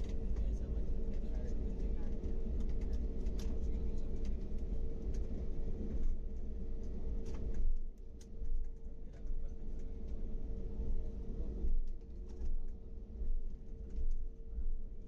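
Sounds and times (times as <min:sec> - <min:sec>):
airliner cabin rumble: 0:00.0 - 0:07.8.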